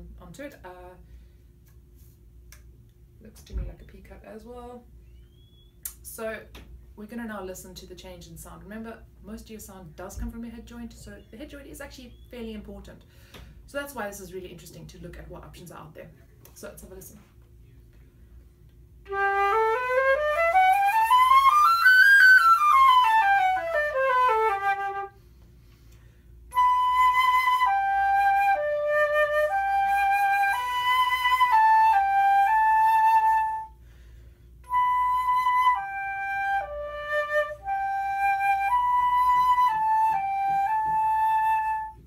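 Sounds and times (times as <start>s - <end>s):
solo flute playing: 5.0s - 5.7s, 19.0s - 25.2s, 26.5s - 33.8s, 34.6s - 42.0s.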